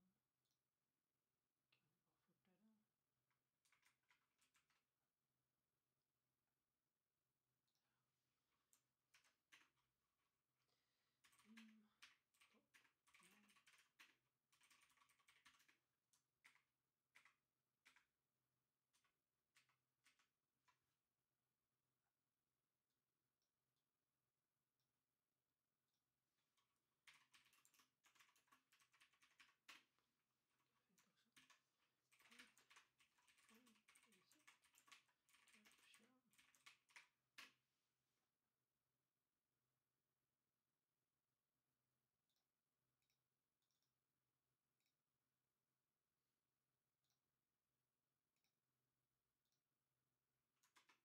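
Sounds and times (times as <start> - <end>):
computer keyboard typing: 3.6 - 4.9, 8.6 - 10.0, 11.2 - 18.2, 18.9 - 20.8, 26.6 - 37.6, 50.6 - 51.0.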